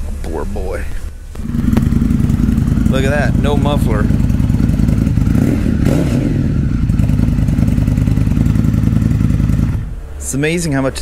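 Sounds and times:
motorcycle engine revving and idling: 1.4 - 10.0.

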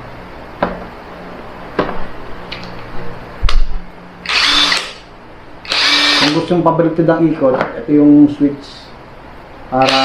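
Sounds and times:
impact wrench motor whine: 4.2 - 5.0, 5.6 - 6.5.

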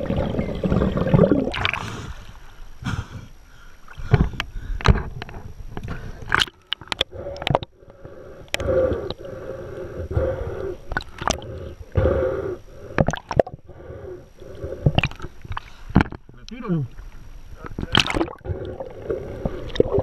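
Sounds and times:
seawater sloshing and gurgling: 0.0 - 2.4, 17.8 - 20.0
sharp splashes and knocks: 17.8 - 18.4.

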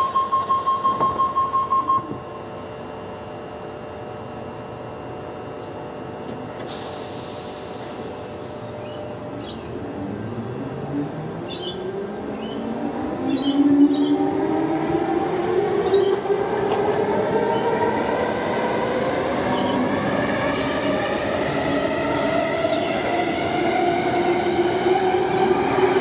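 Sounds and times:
pulsing beep tone: 0.0 - 2.2
diesel locomotives rumbling: 6.1 - 26.0.

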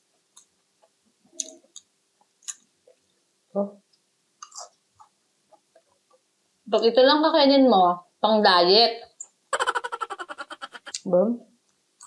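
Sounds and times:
wet mouth clicks: 1.4 - 2.7, 10.6 - 11.1.

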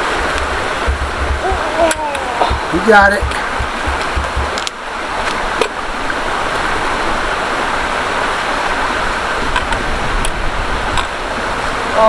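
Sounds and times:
creek running over rocks: 0.0 - 12.0
trekking poles clicking on logs: 0.3 - 5.8, 9.5 - 11.2.

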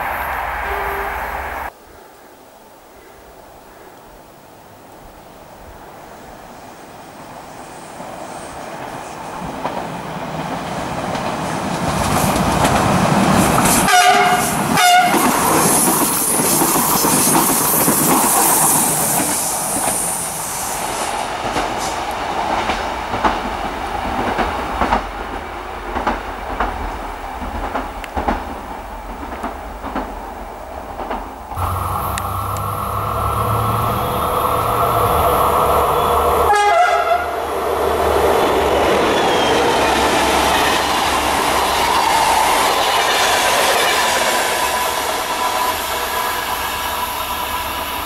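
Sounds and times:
train passing: 0.0 - 1.8, 5.4 - 48.0
train horn blasts: 13.9 - 15.3, 31.6 - 37.4.

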